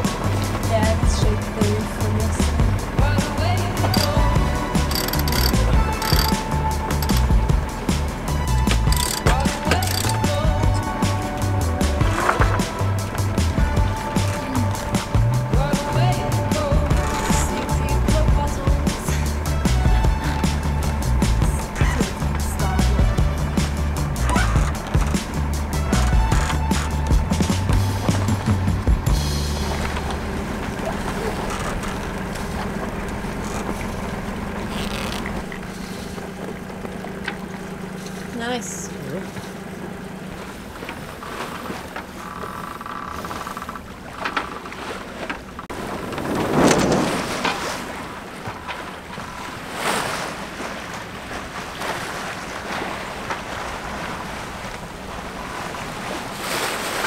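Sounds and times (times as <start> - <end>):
boat engine running: 0.0 - 57.0
wind: 0.0 - 57.0
wind buffeting microphone: 45.7 - 49.2.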